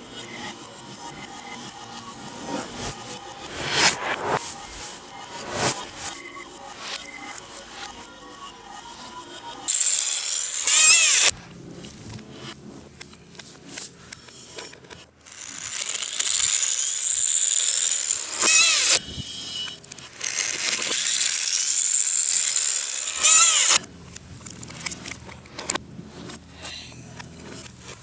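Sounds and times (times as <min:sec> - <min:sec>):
power drill driving screws: 0:09.7 - 0:11.3, 0:15.3 - 0:19.0, 0:20.1 - 0:23.8.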